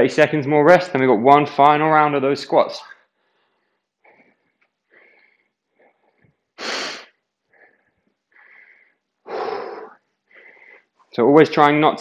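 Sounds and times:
man breathing hard: 0:03.4 - 0:11.0
forceful exhale: 0:08.4 - 0:10.8.

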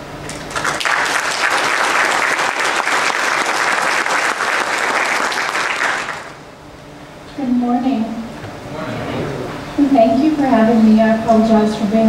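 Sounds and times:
audience applauding: 0:00.3 - 0:06.4.

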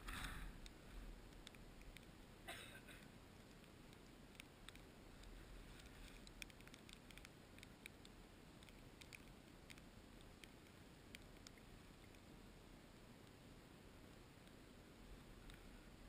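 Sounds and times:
faint small ticks: 0:00.0 - 0:16.0.

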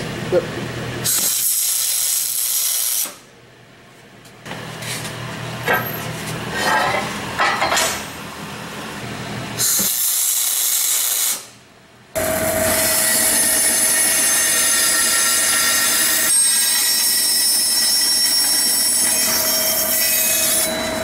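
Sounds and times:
arc welding hiss: 0:01.0 - 0:03.2, 0:09.6 - 0:11.6
band saw cutting steel: 0:12.2 - 0:21.0.

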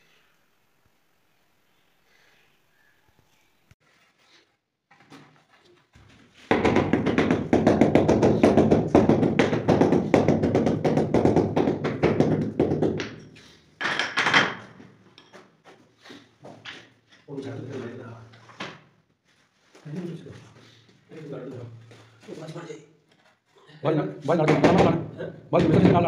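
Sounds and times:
floor tile being tapped: 0:06.5 - 0:15.3, 0:24.3 - 0:25.0, 0:25.6 - 0:26.0.

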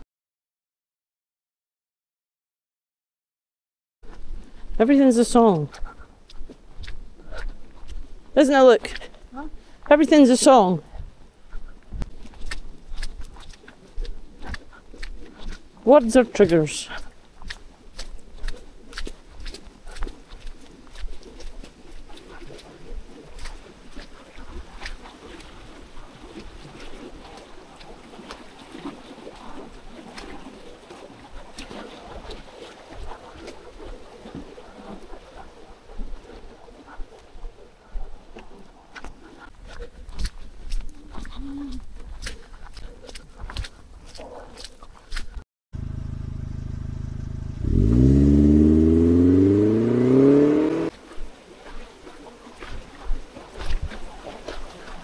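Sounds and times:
vehicle engine revving: 0:45.8 - 0:50.9
stream rushing: 0:47.6 - 0:51.5.

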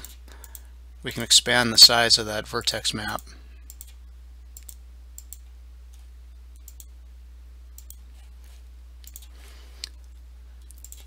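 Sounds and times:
computer mouse clicking: 0:00.0 - 0:00.7, 0:03.7 - 0:04.0, 0:04.6 - 0:06.0, 0:06.6 - 0:06.9, 0:07.8 - 0:08.0, 0:09.0 - 0:09.3, 0:10.6 - 0:11.0
steady low hum: 0:00.0 - 0:11.0.

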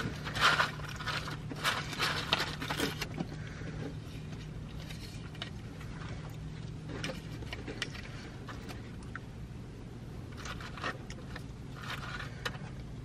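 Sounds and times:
paper bag and wrappers rustling: 0:00.0 - 0:03.2, 0:10.4 - 0:12.4
low car hum: 0:00.0 - 0:13.0.

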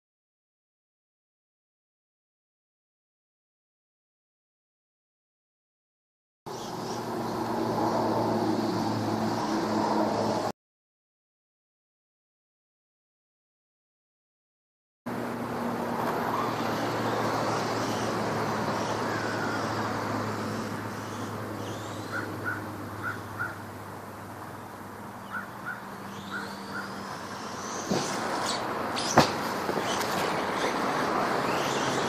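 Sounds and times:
sharp knocks: 0:29.1 - 0:29.9.

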